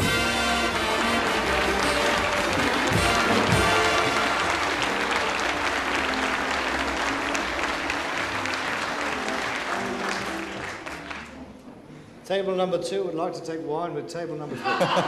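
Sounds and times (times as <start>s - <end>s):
audience applauding: 0.0s - 11.6s
band walk-on music: 0.0s - 11.9s.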